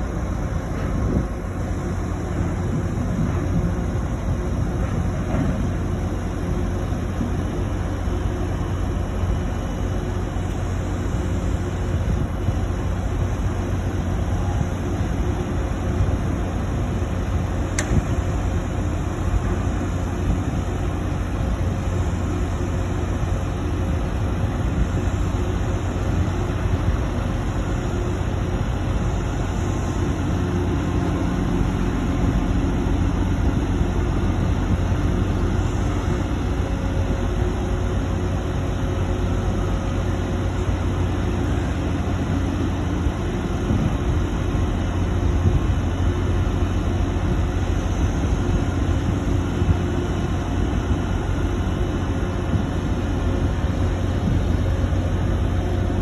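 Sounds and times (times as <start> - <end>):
diesel machinery rumbling: 0.0 - 56.0
sharp click: 17.7 - 18.2.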